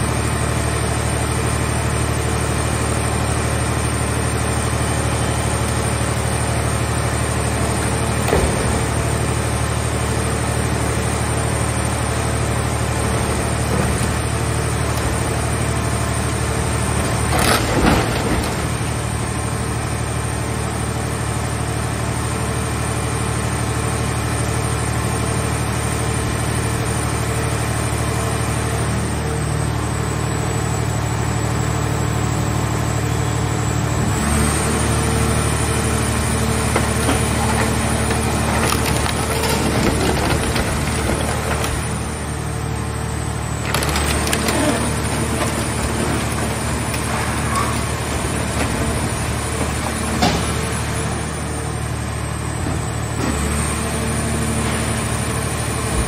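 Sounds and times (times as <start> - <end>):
hydraulic baler running: 0.0 - 56.0
car body crunching: 36.5 - 42.3, 43.5 - 51.0.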